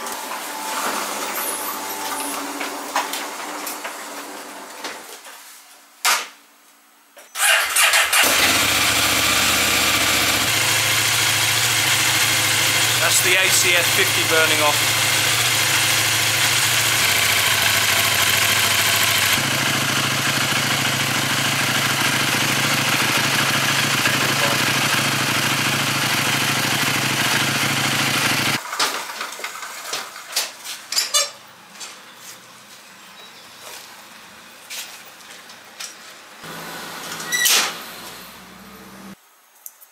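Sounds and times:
motorcycle engine idling: 8.2 - 28.6.

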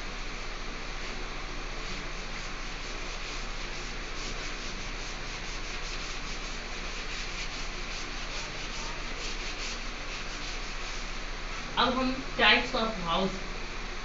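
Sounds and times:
duster rubbing blackboard: 1.0 - 11.2.

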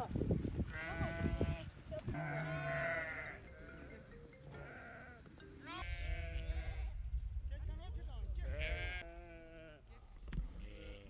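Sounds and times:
sheep bleating: 0.7 - 6.9, 8.4 - 9.8.

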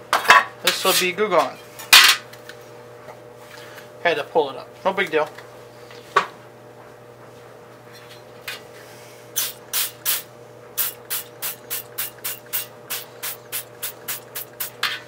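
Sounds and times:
spray bottle squirting: 10.8 - 14.8.

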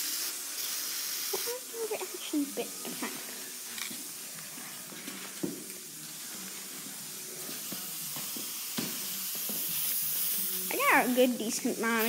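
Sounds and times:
spray paint can hissing: 0.0 - 1.6, 7.5 - 12.0.

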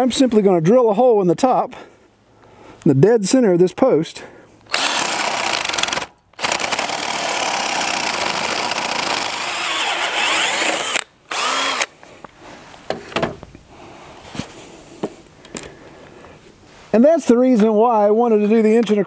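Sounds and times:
electric drill boring into wood: 4.7 - 11.9.

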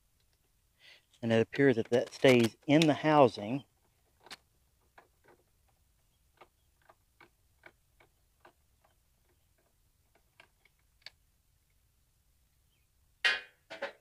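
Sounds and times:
screwdriver clicking on screws: 1.8 - 3.0.

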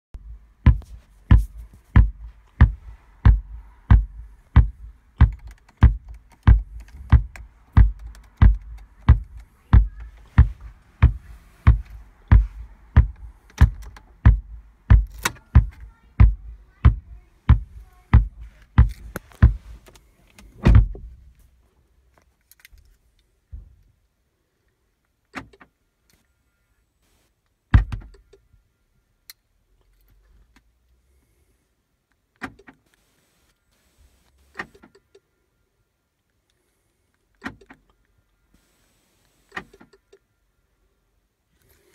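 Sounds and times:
loud thumps through car speakers: 0.2 - 19.8, 20.6 - 21.2, 27.7 - 28.1.

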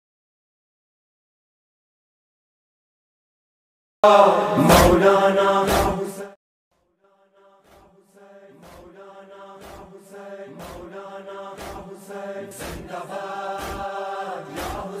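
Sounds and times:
voices chanting a lament: 4.0 - 6.4, 7.2 - 15.0.

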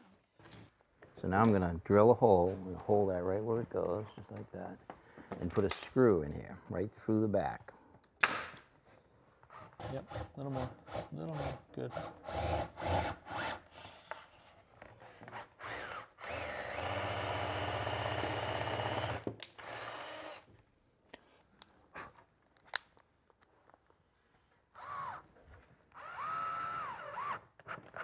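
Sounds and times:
cordless drill driving screw: 15.3 - 20.5, 24.8 - 25.2, 25.9 - 28.0.

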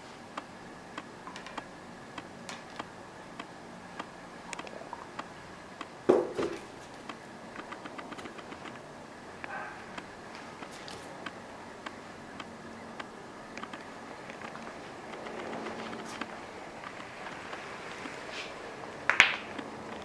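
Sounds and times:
loud thump: 6.1 - 6.6.

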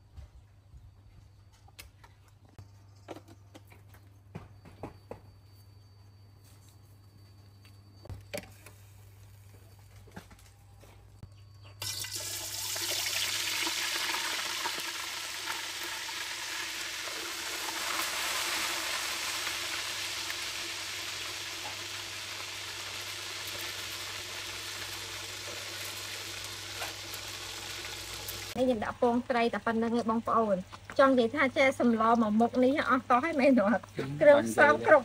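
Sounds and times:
pot of soup boiling: 11.8 - 28.6.

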